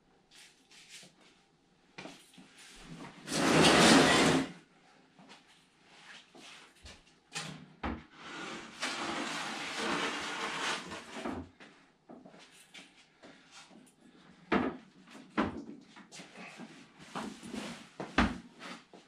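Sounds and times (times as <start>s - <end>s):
loud scrape: 3.2s - 4.5s, 8.2s - 11.3s
wooden panel scraping: 3.2s - 4.5s, 8.2s - 11.4s.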